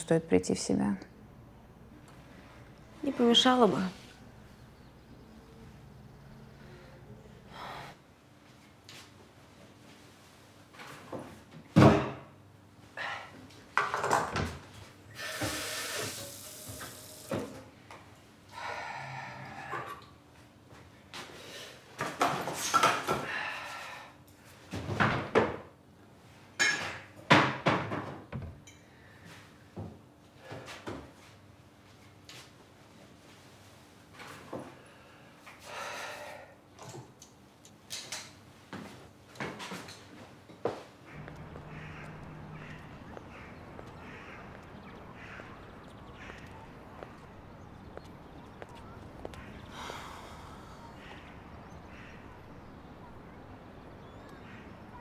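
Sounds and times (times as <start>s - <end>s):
kitchen clatter and knocks: 26.6s - 28.5s.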